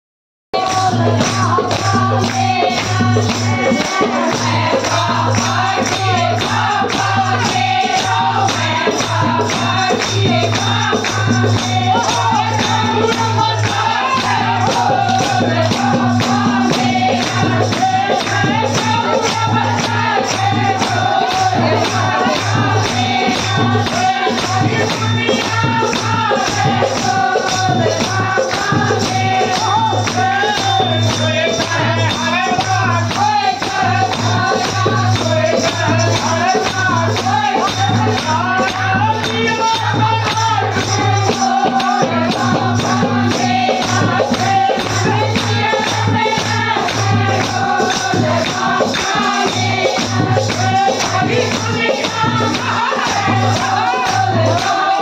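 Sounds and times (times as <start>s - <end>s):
fast percussion beat: 0.5s - 55.0s
devotional singing: 0.6s - 55.0s.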